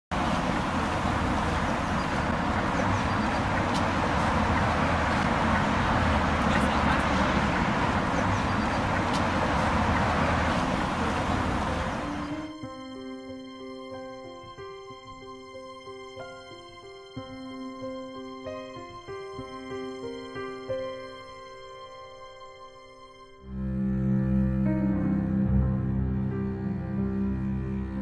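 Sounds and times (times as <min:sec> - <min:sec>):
traffic rumble: 0:00.1 - 0:12.7.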